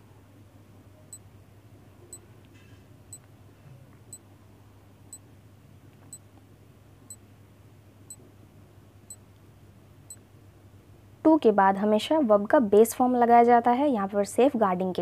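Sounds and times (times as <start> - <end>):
faint low hum: 0.0 - 13.2.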